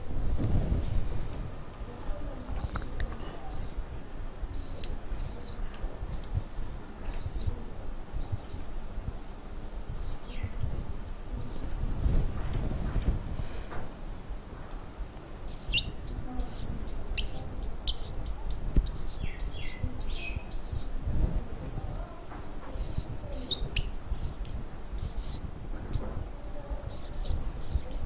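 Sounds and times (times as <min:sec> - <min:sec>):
marker squeaking on whiteboard: 0:02.6 - 0:03.8, 0:04.5 - 0:06.4, 0:07.1 - 0:08.7, 0:10.0 - 0:10.6, 0:15.5 - 0:21.0, 0:22.4 - 0:26.1, 0:26.9 - 0:28.0.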